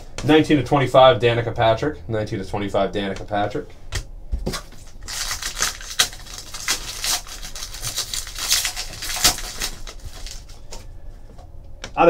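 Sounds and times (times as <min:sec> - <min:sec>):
trading cards flicking and rustling: 0:03.9 - 0:10.9.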